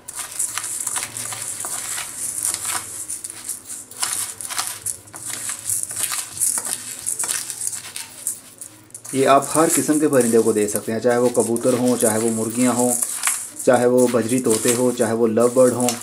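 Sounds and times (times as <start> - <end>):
grain rustling in bowl: 0.0 - 16.0
spoon scraping steel bowl: 0.0 - 16.0.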